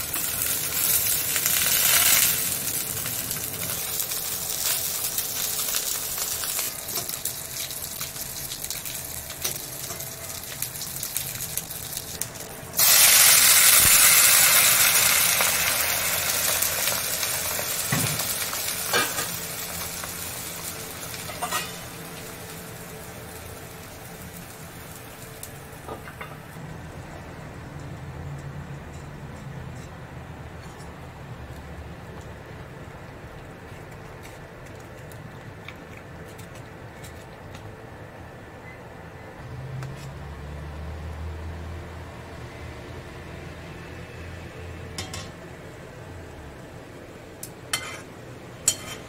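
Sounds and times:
oil sizzling in a pan: 0.0s - 26.6s.

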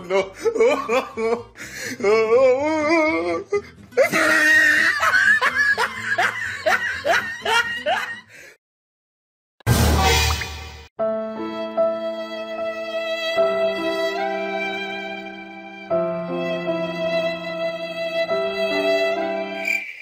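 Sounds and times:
laughter in bursts: 0.0s - 1.6s, 4.0s - 8.3s
music: 0.0s - 8.5s, 9.7s - 19.7s
loud sound: 9.7s - 10.9s.

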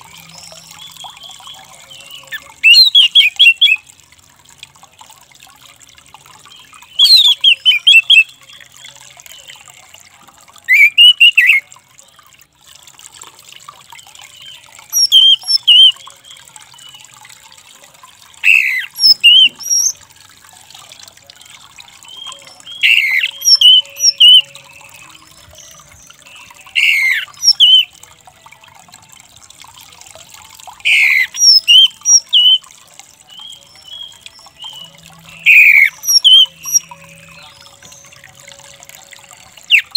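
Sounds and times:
thrush harsh calls: 18.4s - 19.9s, 35.4s - 36.8s.

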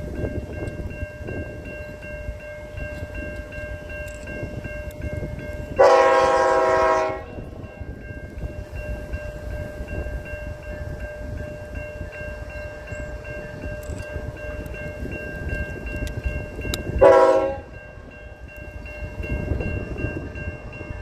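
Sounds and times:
freight train rumble: 0.0s - 21.0s
locomotive air horn blast: 5.8s - 7.4s, 17.0s - 17.8s.

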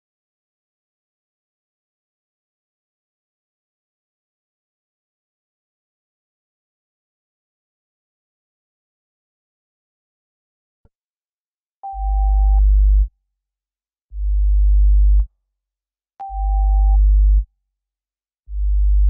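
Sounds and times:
pulsing synthesized bass tone: 16.4s - 17.4s, 18.5s - 19.0s.

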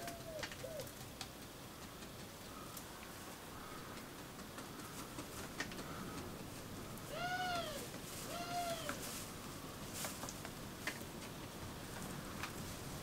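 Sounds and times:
faint clicks and taps: 0.0s - 6.7s.

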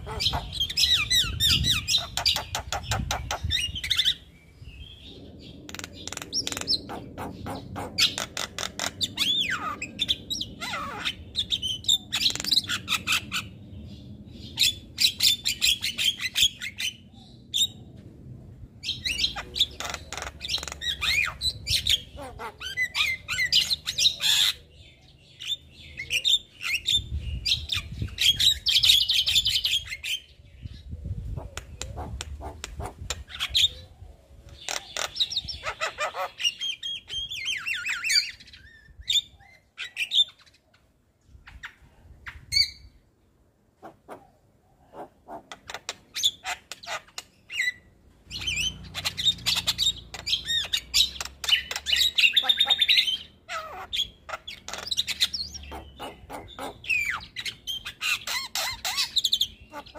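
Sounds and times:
bird chattering and whistling: 0.0s - 4.3s, 5.5s - 13.5s, 43.8s - 59.9s.

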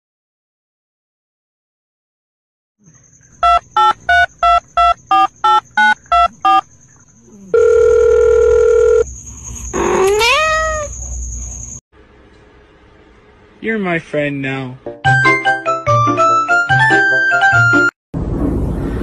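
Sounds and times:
long steady beep: 3.4s - 6.7s
short electronic beeps: 3.4s - 6.7s
cat meowing: 9.8s - 10.9s.

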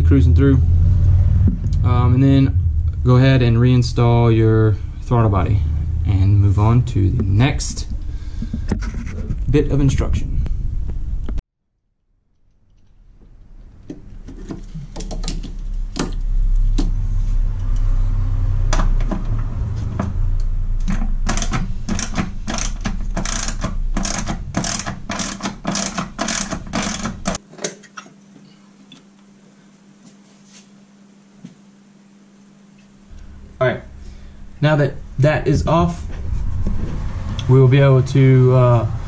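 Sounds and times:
faint hum: 0.0s - 11.4s, 12.3s - 39.0s
low rumble: 0.0s - 11.4s, 15.6s - 27.4s, 33.1s - 39.0s
ratchet clicking: 20.8s - 27.4s.

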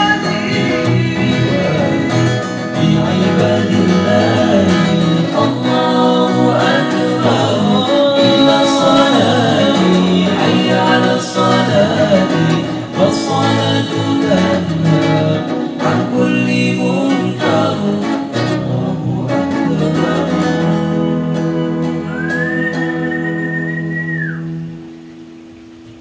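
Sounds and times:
men singing together: 0.0s - 22.8s
strummed acoustic guitar: 0.0s - 26.0s.

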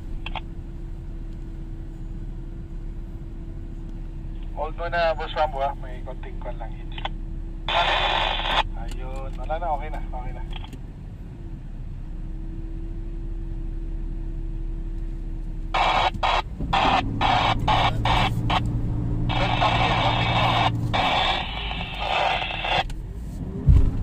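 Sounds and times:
engine humming at low revs: 0.0s - 24.0s
two-way radio static: 4.4s - 10.7s, 15.7s - 22.9s.

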